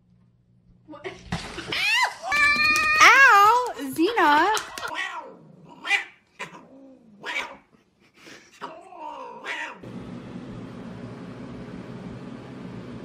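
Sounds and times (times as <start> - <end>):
cat yowling: 4.8 - 7.7, 8.6 - 9.8.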